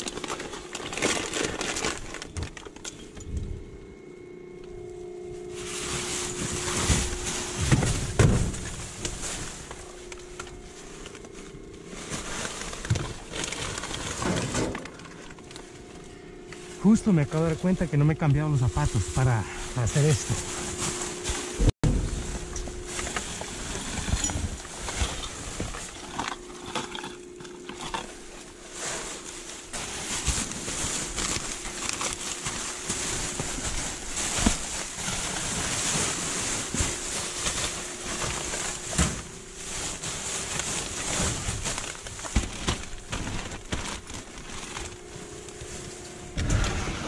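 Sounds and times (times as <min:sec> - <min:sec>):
plastic bags rustling: 0:00.0 - 0:47.0
trash knocking and thumping: 0:05.6 - 0:11.4, 0:12.0 - 0:15.6, 0:20.2 - 0:27.0, 0:29.8 - 0:45.0.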